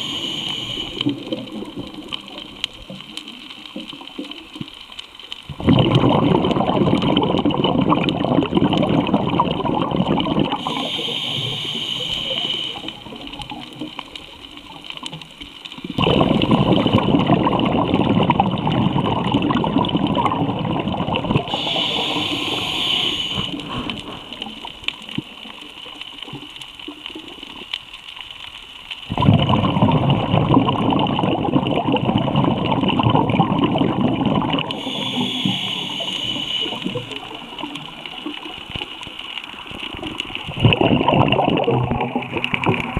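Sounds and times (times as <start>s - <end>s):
scuba regulator inhale hiss: 0.0s - 1.4s, 10.5s - 13.2s, 21.5s - 24.8s, 34.7s - 37.4s
underwater exhaust bubbling: 0.0s - 27.8s, 29.0s - 42.9s.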